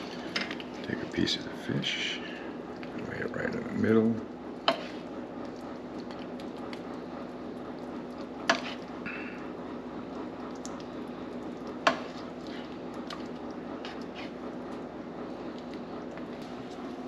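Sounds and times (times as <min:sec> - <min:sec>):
low hiss and hum: 0:00.0 - 0:17.0.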